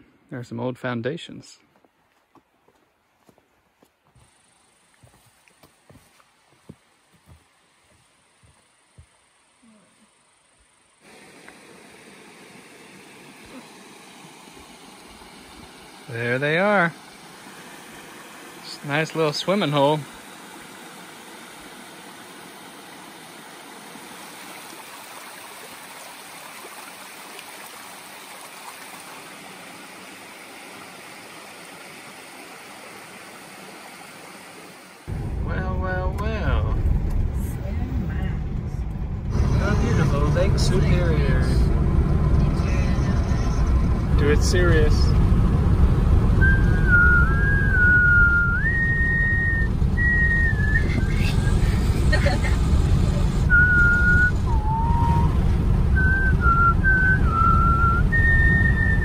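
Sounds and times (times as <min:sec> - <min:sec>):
road and engine rumble: 0:00.0 - 0:59.0
creek water splashing: 0:11.0 - 0:35.1
two people whistling a melody: 0:46.4 - 0:51.1, 0:53.5 - 0:55.4, 0:56.0 - 0:59.0.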